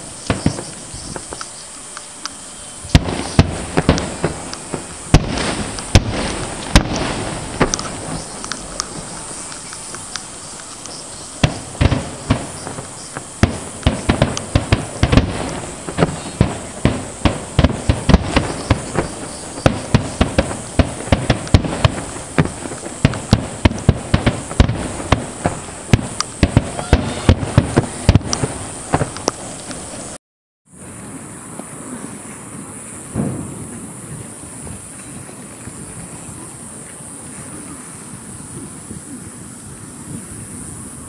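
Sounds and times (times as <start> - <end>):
firework shells bursting: 0.0 - 30.2.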